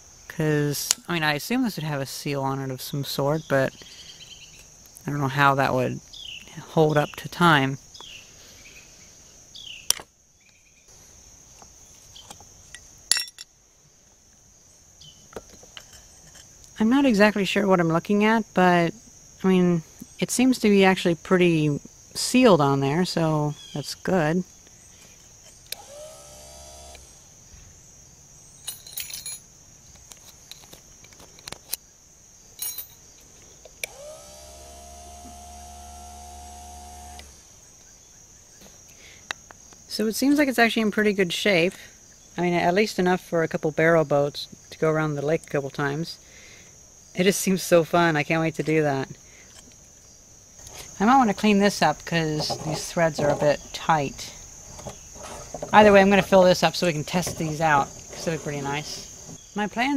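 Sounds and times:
crickets chirping: 0:00.0 - 0:59.9
ringing metallic clink: 0:13.1 - 0:13.5, 0:32.6 - 0:33.0
electric motor whining: 0:25.7 - 0:27.2, 0:33.8 - 0:37.4.

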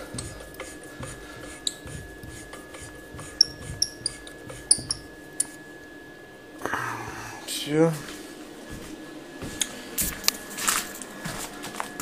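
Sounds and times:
valve squeaking: 0:00.0 - 0:05.7.

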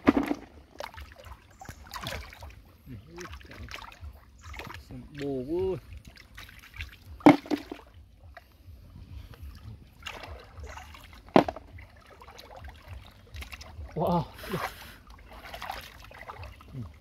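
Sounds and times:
hands splashing in stream water: 0:00.0 - 0:02.6, 0:14.5 - 0:17.0
short sharp splashes: 0:00.0 - 0:02.6, 0:06.0 - 0:07.9, 0:10.0 - 0:16.9.

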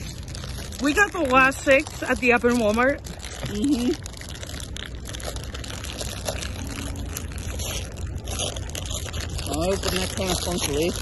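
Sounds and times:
foil packs crinkling and tearing: 0:00.0 - 0:11.0
low rumble: 0:00.0 - 0:11.0.

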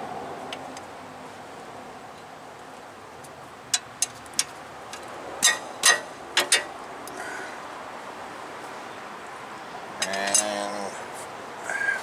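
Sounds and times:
metal clanks ringing: 0:05.4 - 0:06.7.

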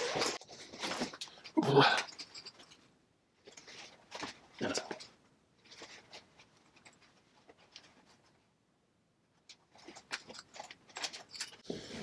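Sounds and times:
thread rustling through canvas: 0:00.0 - 0:08.6.

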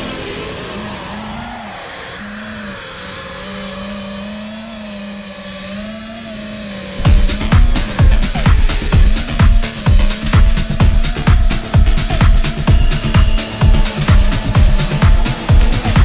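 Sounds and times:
quadcopter motors whining: 0:00.0 - 0:16.0
loud music with heavy beat: 0:07.0 - 0:16.0.

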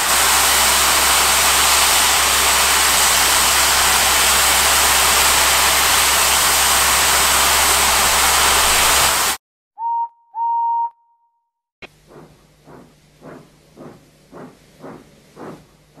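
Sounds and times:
steam hissing: 0:00.0 - 0:09.4.

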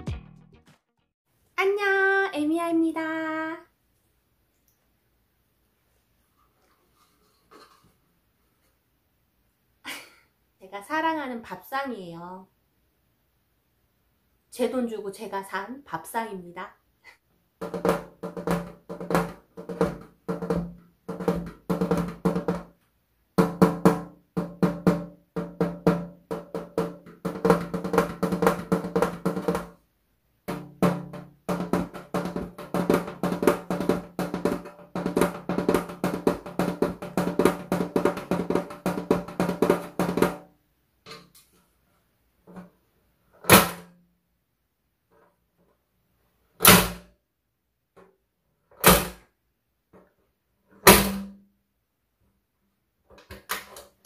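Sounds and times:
fingers drumming on metal tray: 0:30.5 - 0:40.4.

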